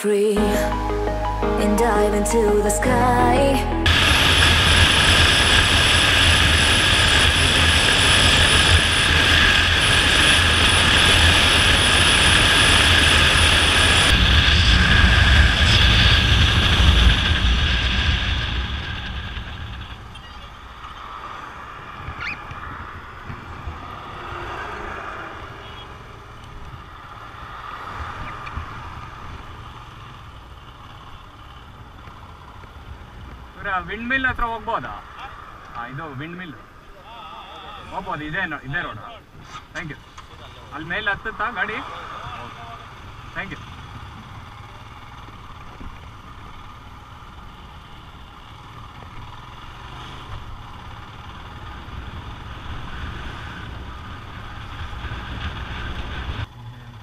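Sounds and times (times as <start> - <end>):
motorcycle engine running: 3.9 - 21.1, 42.4 - 57.0
rushing wind: 3.9 - 30.2.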